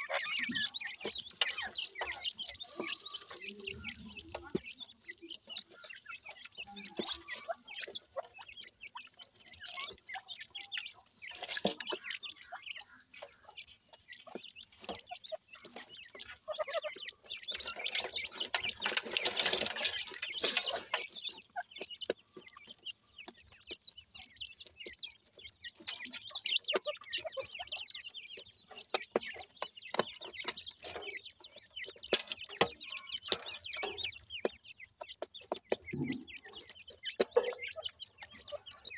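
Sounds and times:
beaks and feet clicking on soil: 0:00.0 - 0:38.9
birds chirping: 0:00.0 - 0:38.9
rustling: 0:17.6 - 0:21.5.

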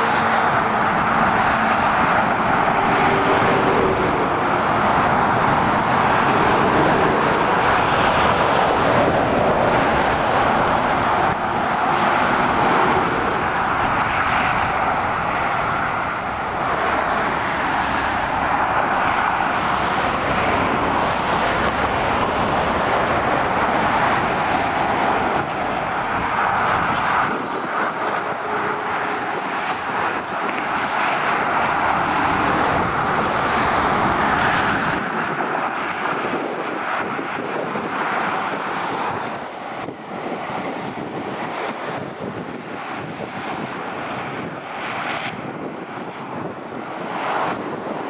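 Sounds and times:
motorway traffic tyre roar: 0:00.0 - 0:48.0.

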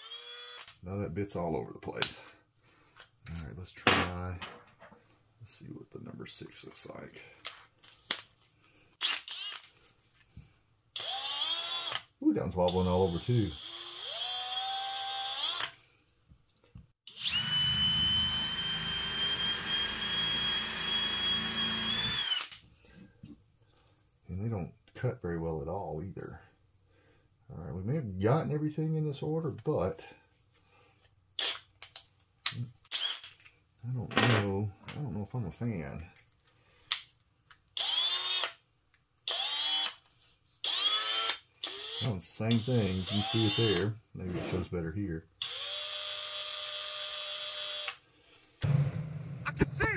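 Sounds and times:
cordless drill whining: 0:00.0 - 0:00.8, 0:09.0 - 0:09.7, 0:11.0 - 0:12.1, 0:12.7 - 0:15.8, 0:17.1 - 0:22.6, 0:37.8 - 0:38.6, 0:39.3 - 0:40.0, 0:40.6 - 0:43.8, 0:45.4 - 0:48.0.

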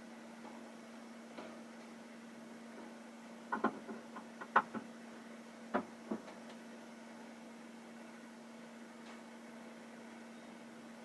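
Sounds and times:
steady low hum: 0:00.0 - 0:11.0
sharp clicks and knocks: 0:03.5 - 0:04.9, 0:05.7 - 0:06.6.

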